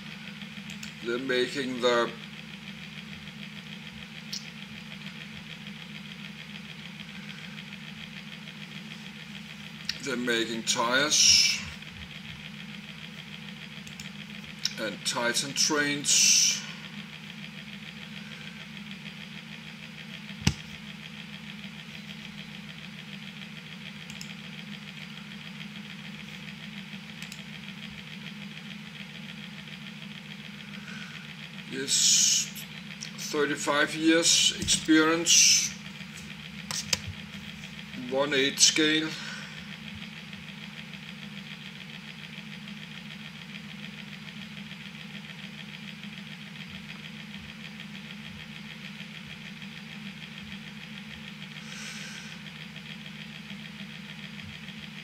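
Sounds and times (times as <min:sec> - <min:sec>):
machine humming: 0:00.0 - 0:55.0
computer mouse clicks: 0:24.1 - 0:24.4, 0:27.2 - 0:27.5.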